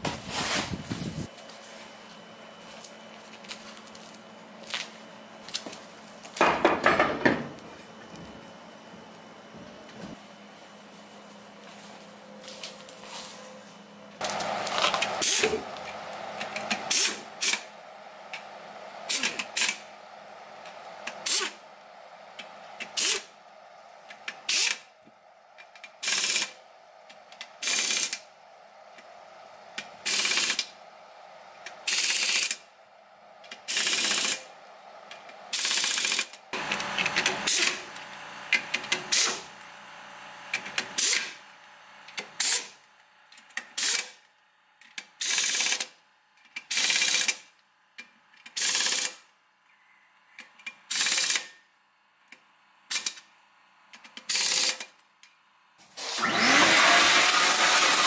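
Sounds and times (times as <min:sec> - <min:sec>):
pneumatic impact wrench bursts: 0:15.0 - 0:15.6, 0:16.6 - 0:17.7, 0:19.1 - 0:19.8, 0:21.2 - 0:21.6, 0:22.8 - 0:23.3, 0:24.5 - 0:24.9, 0:26.0 - 0:26.6, 0:27.6 - 0:28.2, 0:30.0 - 0:30.7, 0:31.8 - 0:32.6, 0:33.7 - 0:34.5, 0:35.5 - 0:37.9, 0:38.5 - 0:39.5, 0:41.0 - 0:41.4, 0:42.4 - 0:42.8, 0:43.7 - 0:44.2, 0:45.2 - 0:45.9, 0:46.7 - 0:47.5, 0:48.6 - 0:49.2, 0:50.9 - 0:51.5, 0:54.2 - 0:54.9, 0:55.8 - 0:58.0.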